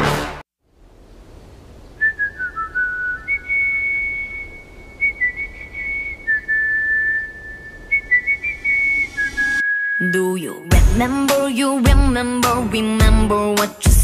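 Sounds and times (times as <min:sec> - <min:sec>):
person whistling a tune: 0:02.0 - 0:10.6.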